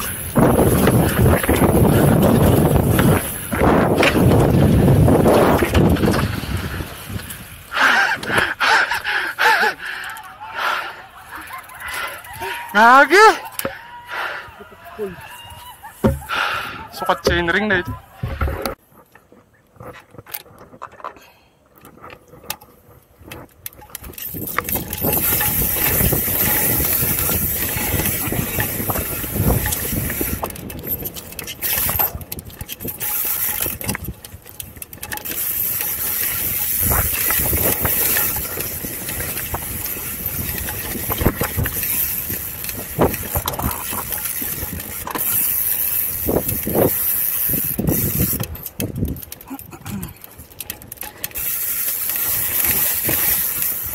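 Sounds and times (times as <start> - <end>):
wind rushing over microphone: 0.0 - 8.5, 24.0 - 34.4, 35.0 - 49.8
bike rattling on dirt trail: 0.0 - 53.9.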